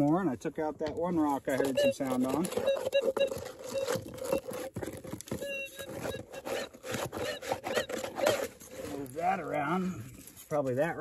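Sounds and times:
coil scraping gravel: 0:01.0 - 0:11.0
metal detector hum: 0:01.5 - 0:04.5, 0:05.4 - 0:08.4.

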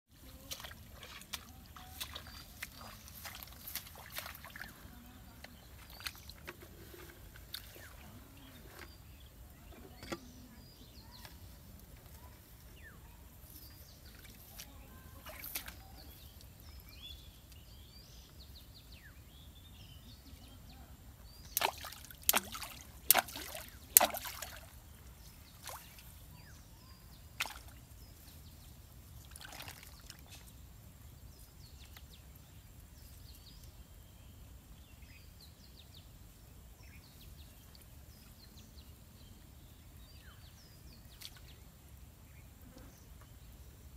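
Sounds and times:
sharp water splashes: 0:00.3 - 0:04.8, 0:21.5 - 0:24.8, 0:25.5 - 0:26.1, 0:27.4 - 0:27.8, 0:29.2 - 0:30.3.

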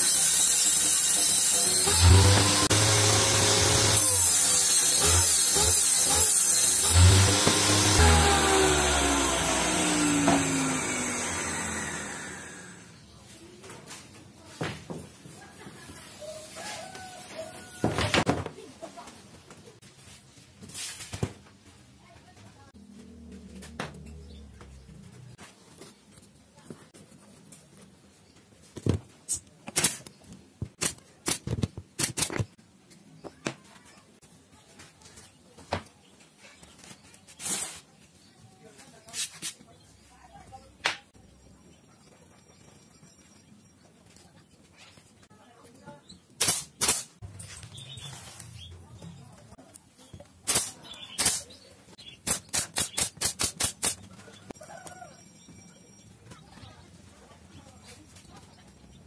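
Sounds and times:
nail gun shots: 0:29.7 - 0:30.1, 0:30.8 - 0:32.4, 0:46.4 - 0:47.2, 0:50.5 - 0:51.5, 0:52.2 - 0:54.0.

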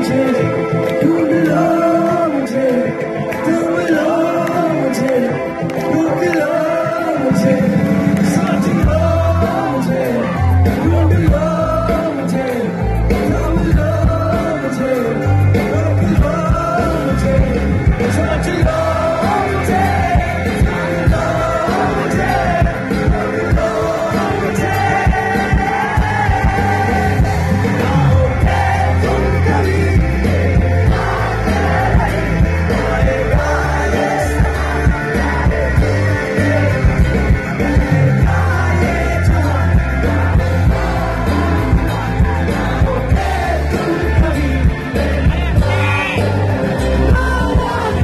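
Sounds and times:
electric guitars: 0:00.0 - 0:48.0
live rock band playing: 0:00.0 - 0:48.0
person singing: 0:00.0 - 0:48.0
heavy pulsing bass: 0:07.0 - 0:48.0.

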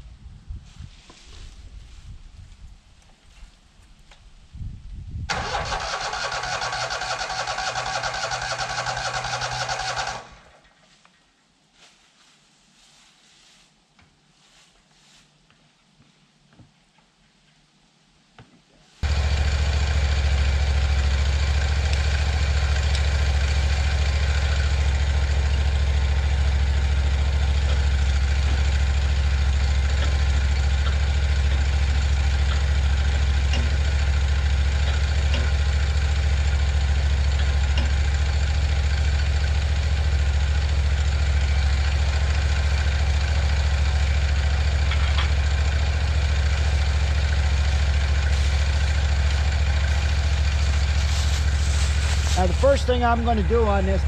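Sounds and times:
gasoline engine idling: 0:05.3 - 0:10.6, 0:19.0 - 0:54.0.

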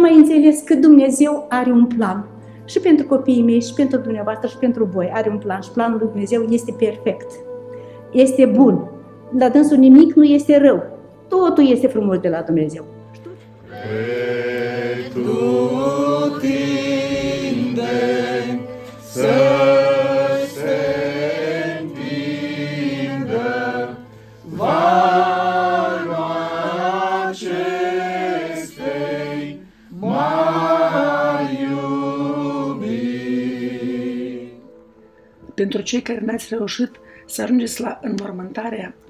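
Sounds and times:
group singing a hymn: 0:13.3 - 0:34.8.

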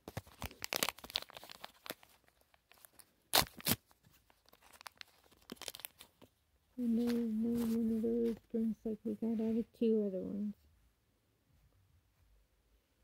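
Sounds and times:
packaging ripping: 0:00.0 - 0:06.1
packaging crinkling: 0:00.0 - 0:06.3.

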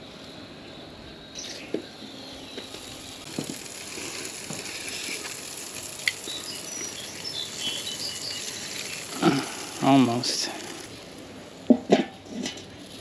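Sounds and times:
food sizzling on a grill: 0:02.7 - 0:11.0.

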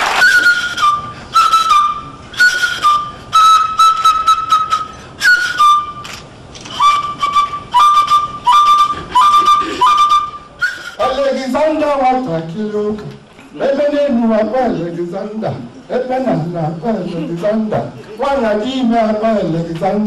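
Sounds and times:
small hand-held flute: 0:00.0 - 0:11.2.

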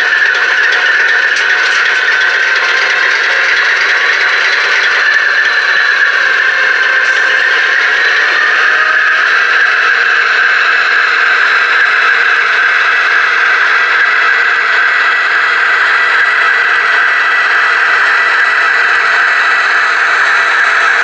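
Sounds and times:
thin diesel engine sound from speaker: 0:00.0 - 0:21.0.

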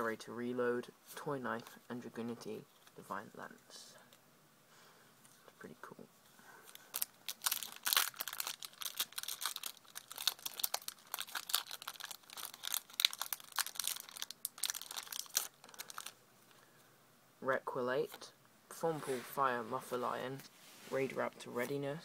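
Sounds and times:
foil wrapper crinkling and tearing: 0:06.7 - 0:16.2.

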